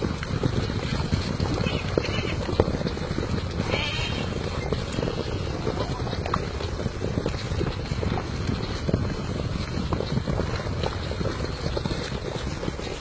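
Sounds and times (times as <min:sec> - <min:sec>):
hooves drumming on grass: 0:00.0 - 0:13.0
sheep bleating: 0:03.6 - 0:04.4.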